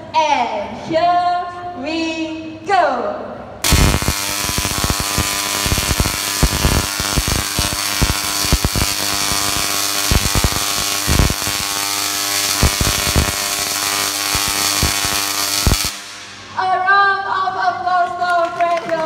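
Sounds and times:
sharp spark cracks: 0:03.6 - 0:16.6
tesla coil buzzing crackle: 0:03.6 - 0:16.6.

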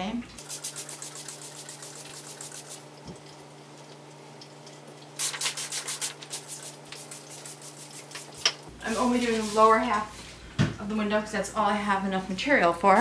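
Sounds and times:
spray bottle squirting: 0:00.4 - 0:02.8, 0:05.2 - 0:08.6.

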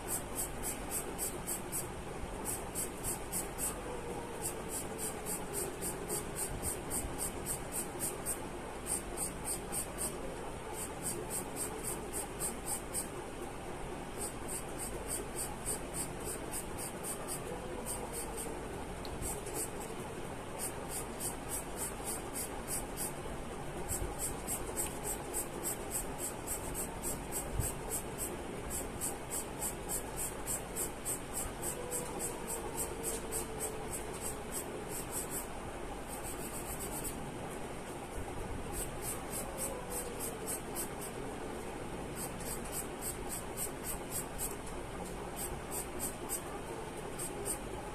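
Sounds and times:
charcoal pencil scratching on paper: 0:04.4 - 0:10.2, 0:14.2 - 0:18.5, 0:19.2 - 0:19.9, 0:23.9 - 0:35.5, 0:36.1 - 0:37.2, 0:38.7 - 0:41.2, 0:45.4 - 0:46.6.

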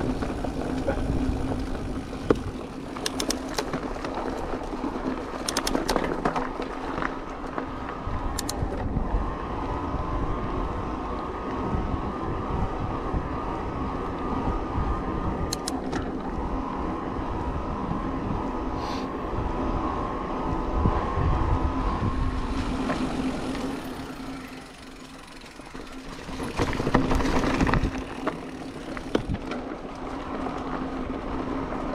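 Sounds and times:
bike tyres rumbling on trail: 0:00.0 - 0:31.9
constant motor hum: 0:00.0 - 0:31.9
wind: 0:00.0 - 0:31.9
sharp clicks: 0:02.9 - 0:03.8, 0:05.4 - 0:06.1, 0:08.3 - 0:08.8, 0:15.5 - 0:16.0.

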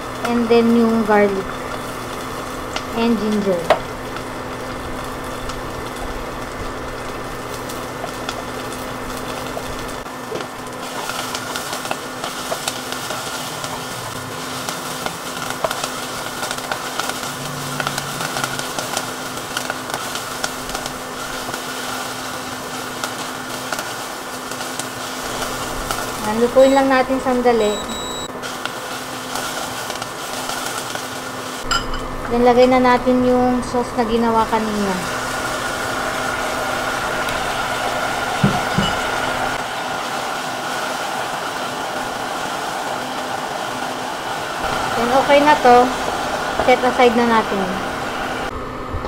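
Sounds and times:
vegetables sizzling in oil: 0:00.0 - 0:48.6
low hum: 0:16.2 - 0:21.4.

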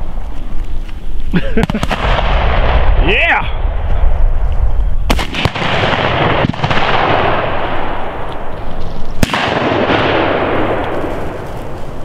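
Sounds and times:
rolling echo: 0:01.5 - 0:12.0
shotgun shots: 0:01.6 - 0:03.0, 0:05.1 - 0:08.3, 0:09.1 - 0:11.4.

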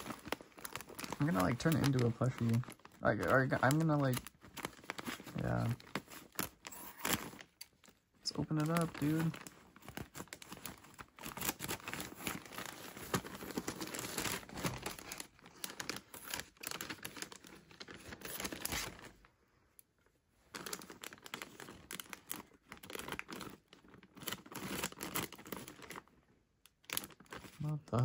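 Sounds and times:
scissors cutting plastic: 0:00.0 - 0:15.2
plastic bag crinkling and tearing: 0:00.0 - 0:19.3, 0:20.5 - 0:28.0.

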